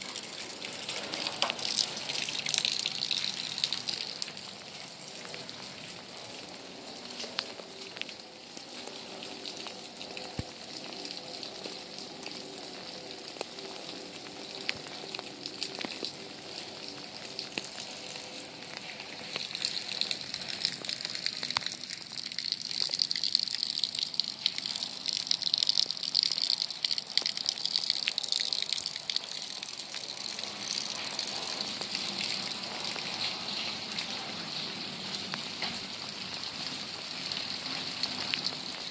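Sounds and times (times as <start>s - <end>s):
rainwater runoff rushing: 0.0s - 38.9s.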